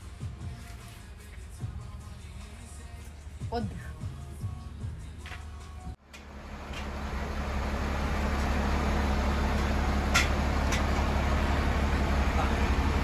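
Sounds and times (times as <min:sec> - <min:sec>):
vehicle engine running: 0:06.0 - 0:13.0.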